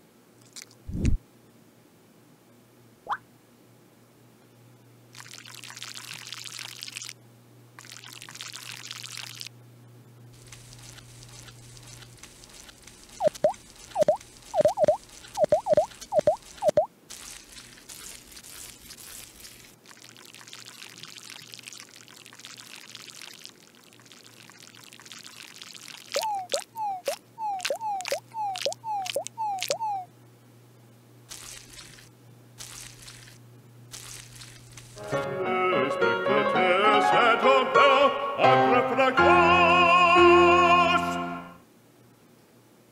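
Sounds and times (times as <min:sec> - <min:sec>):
water trickling: 0:05.2 - 0:07.2, 0:07.8 - 0:09.5, 0:10.4 - 0:16.9, 0:19.7 - 0:30.1
operatic voice singing: 0:35.4 - 0:41.6.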